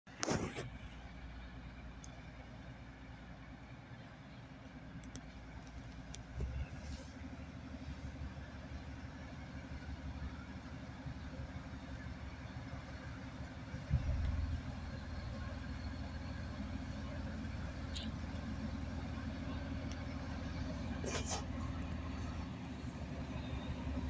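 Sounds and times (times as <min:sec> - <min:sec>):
locomotive diesel engine drone: 0:00.1 - 0:24.0
faint clicks: 0:04.9 - 0:06.5.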